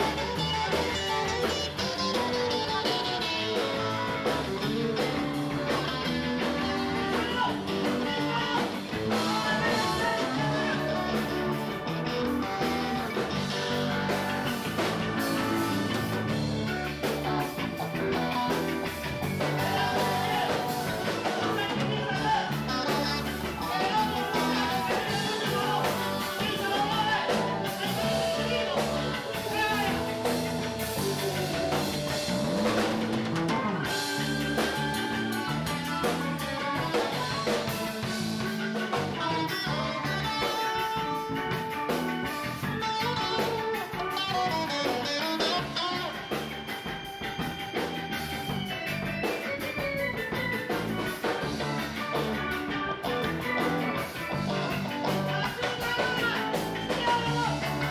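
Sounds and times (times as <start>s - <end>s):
person singing: 0.0s - 14.2s, 17.8s - 41.1s, 53.2s - 57.9s
bass guitar: 0.0s - 57.9s
drum kit: 0.0s - 57.9s
electric guitar: 0.0s - 57.9s.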